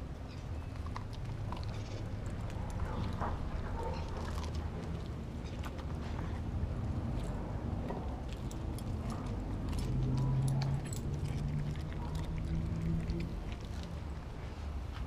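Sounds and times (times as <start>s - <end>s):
dog chewing: 0.6s - 6.5s, 7.1s - 14.6s
collar tag jingling: 8.3s - 14.1s.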